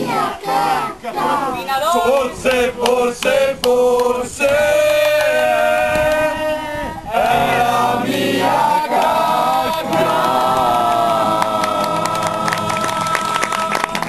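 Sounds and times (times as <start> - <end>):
group of voices singing: 0.0 - 14.0
hand clapping: 2.8 - 4.2, 8.9 - 9.2, 9.9 - 10.6, 11.3 - 14.0.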